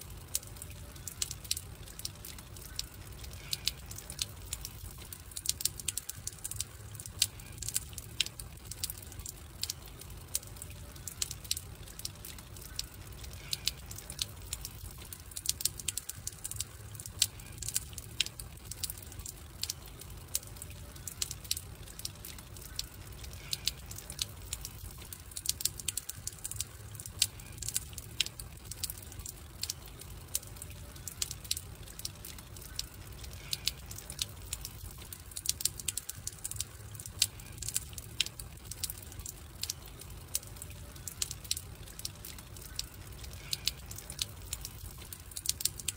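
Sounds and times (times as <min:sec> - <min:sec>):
campfire crackling: 0:00.0 - 0:45.9
low rumble of burning: 0:00.0 - 0:45.9.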